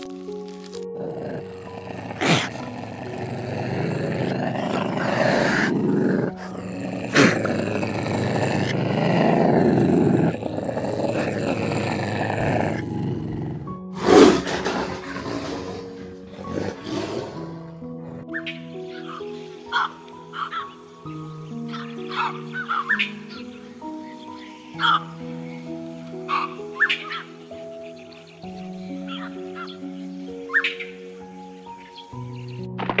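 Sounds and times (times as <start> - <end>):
soft background music: 0.0 - 33.0
big cat growling roars: 1.0 - 18.2.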